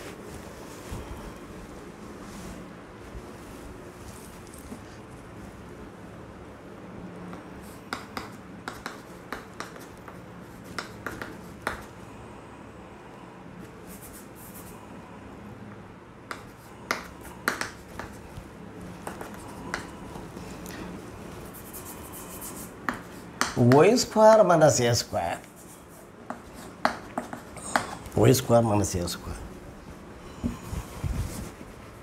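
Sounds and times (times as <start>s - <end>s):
steady low hum: 0.0s - 32.0s
chalk tapping on blackboard: 7.3s - 11.9s, 16.3s - 18.4s, 19.0s - 20.0s, 21.4s - 24.5s, 25.4s - 28.0s.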